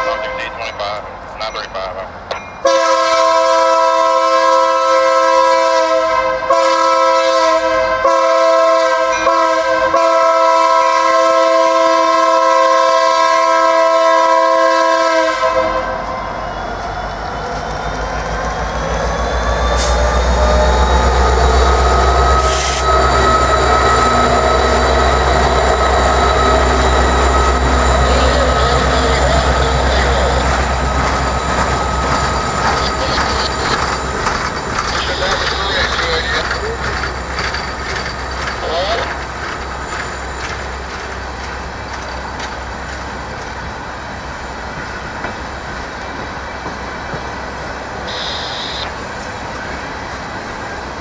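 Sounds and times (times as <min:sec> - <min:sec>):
locomotive air horn: 0:00.0 - 0:00.6, 0:02.6 - 0:16.2, 0:22.4 - 0:24.8, 0:48.1 - 0:48.9
diesel locomotives rumbling past: 0:00.0 - 0:51.0.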